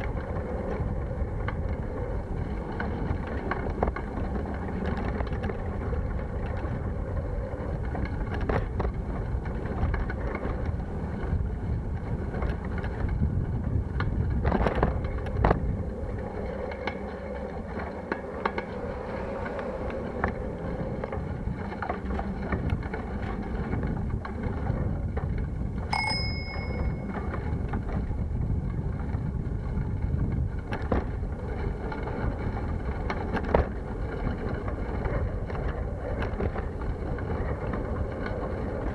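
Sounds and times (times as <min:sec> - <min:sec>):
road rumble: 0:00.0 - 0:38.9
wind on microphone: 0:00.0 - 0:38.9
bicycle bell ringing: 0:25.9 - 0:27.2.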